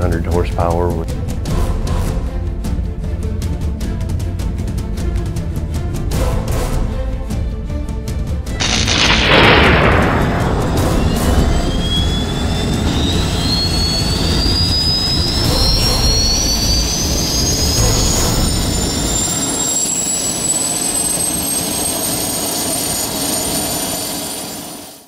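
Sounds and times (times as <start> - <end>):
low rumble: 8.6 - 19.3
turbine whine rising: 8.6 - 25.0.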